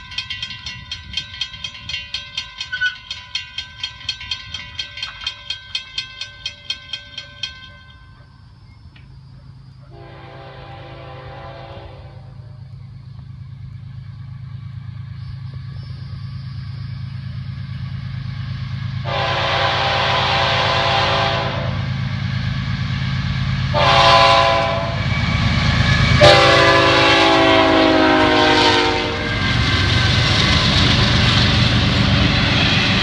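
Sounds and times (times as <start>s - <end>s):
train cars rail noise: 0.0s - 33.0s
train air horn blasts: 9.9s - 12.6s, 19.0s - 21.9s, 23.7s - 25.1s, 26.2s - 29.4s.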